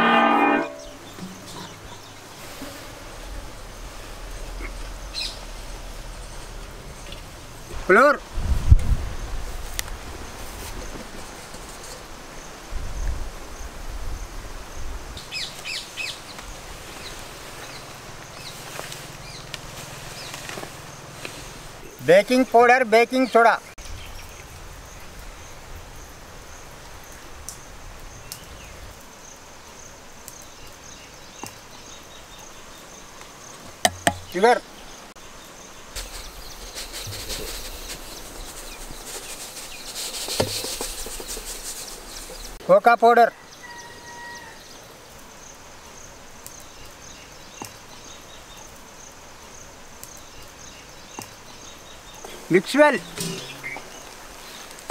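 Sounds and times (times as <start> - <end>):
insect chirping: 0.0 - 22.0, 23.8 - 42.6, 43.3 - 54.9
low rumble: 2.9 - 7.7.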